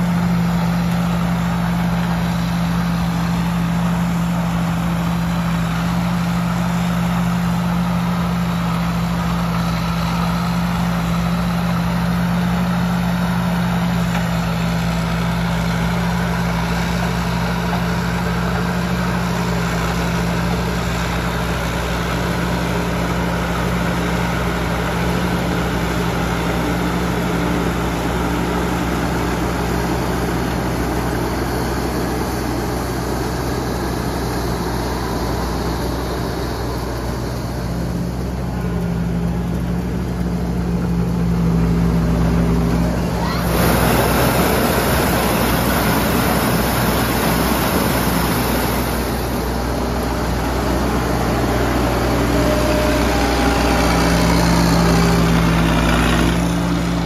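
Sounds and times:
combine harvester engine drone: 0:00.0 - 0:57.0.

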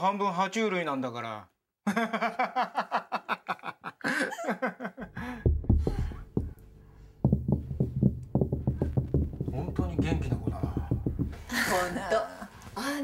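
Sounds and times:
person laughing: 0:01.9 - 0:05.4, 0:11.5 - 0:12.4
low rumble: 0:05.2 - 0:11.9
heavy irregular thuds and knocks: 0:05.2 - 0:12.0.

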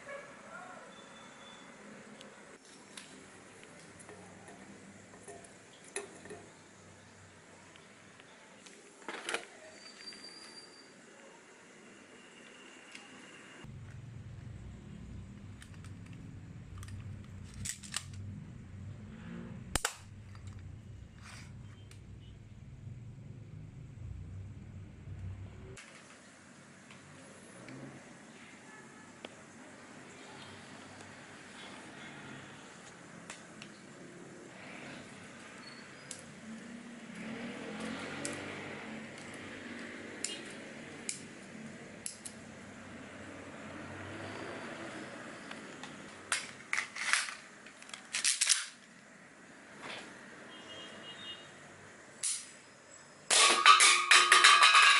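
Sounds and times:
plastic parts clicking: 0:15.6 - 0:18.3, 0:45.7 - 0:48.9
toy pistol mechanical clicks: 0:42.0 - 0:42.4.

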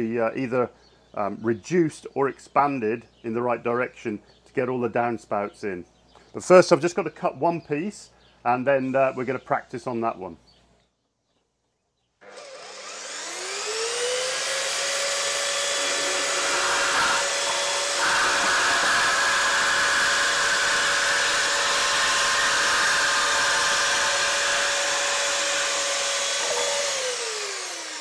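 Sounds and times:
bandsaw motor whine: 0:12.2 - 0:28.0
bandsaw blade screeching through metal: 0:12.3 - 0:28.0.

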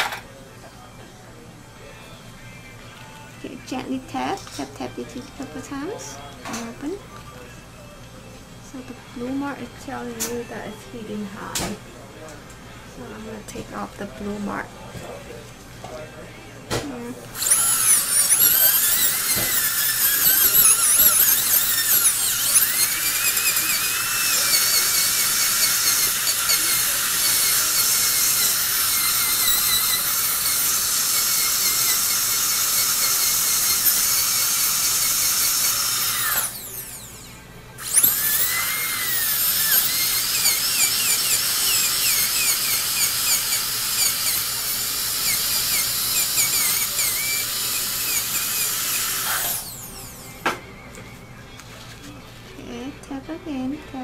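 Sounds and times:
dental drill whining: 0:17.1 - 0:50.6.

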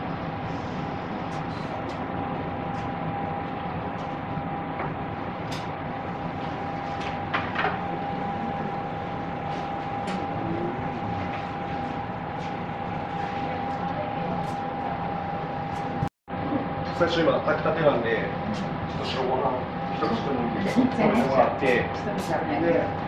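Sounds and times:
constant high hum: 0:00.0 - 0:23.0
restaurant room noise: 0:00.0 - 0:23.0.

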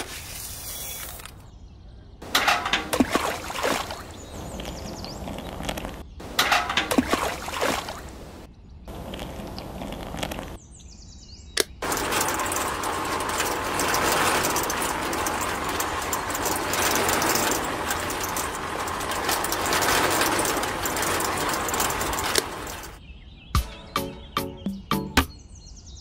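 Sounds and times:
water pouring: 0:02.4 - 0:04.4, 0:06.4 - 0:08.4.

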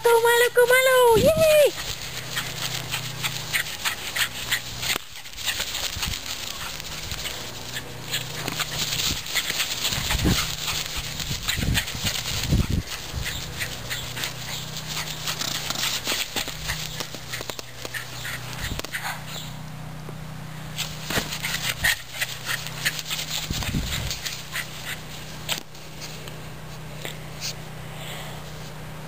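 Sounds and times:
dog running in grass: 0:00.0 - 0:19.5, 0:20.8 - 0:26.8
wind buffeting microphone: 0:01.1 - 0:03.3, 0:08.9 - 0:14.2, 0:23.4 - 0:24.2.

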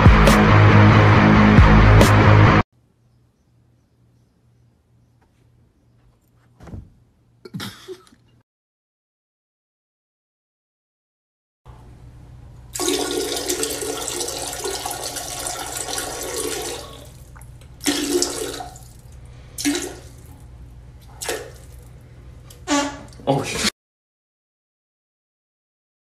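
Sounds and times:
toilet flushing: 0:12.7 - 0:20.4.

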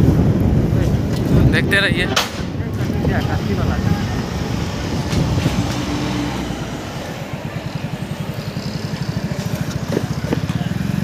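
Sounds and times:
road and wind noise: 0:00.0 - 0:11.0
motorcycle engine at low speed: 0:02.6 - 0:11.0.

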